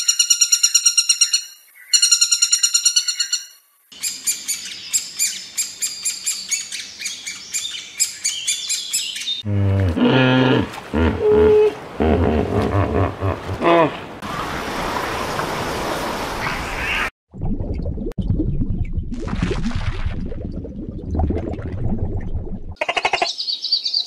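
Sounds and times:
woodpecker rattling call: 0.0 - 9.0
high bird chirping: 0.0 - 9.4
hippo grunts: 9.4 - 14.2.

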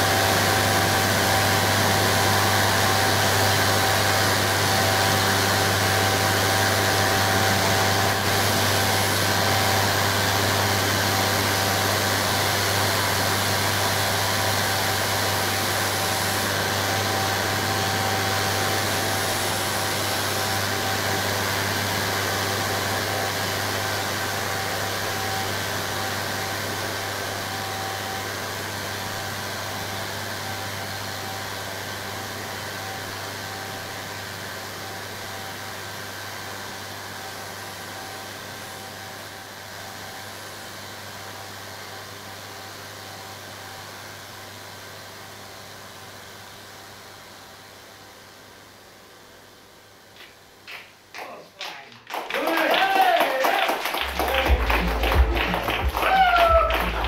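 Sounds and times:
distorted static noise music: 53.9 - 57.0
steady low drone: 54.0 - 57.0.

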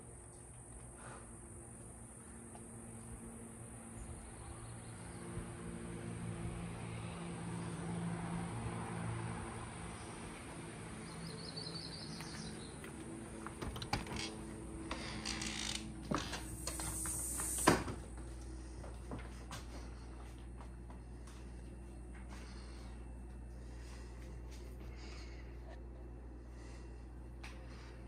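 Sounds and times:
door creaking: 13.6 - 17.9.

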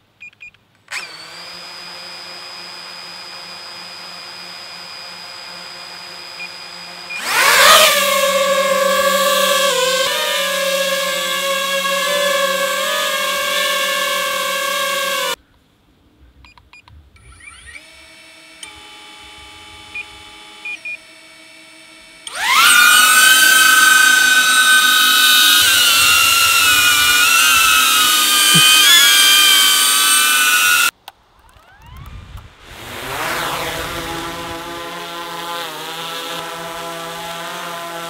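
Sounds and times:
drone motors spinning up: 0.9 - 15.4, 21.6 - 30.9, 31.5 - 38.0
drone propeller whine: 1.6 - 15.4, 22.3 - 30.9.

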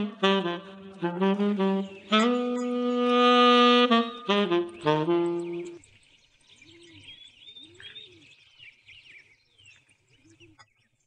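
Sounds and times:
background music: 0.0 - 5.8
low cooing calls: 0.0 - 5.8, 6.6 - 8.3
small birds chirping: 0.0 - 11.0.

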